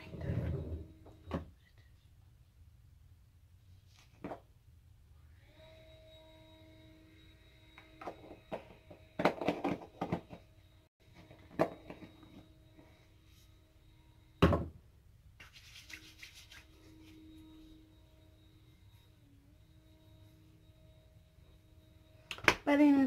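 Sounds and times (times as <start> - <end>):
thump: 14.4 - 14.7.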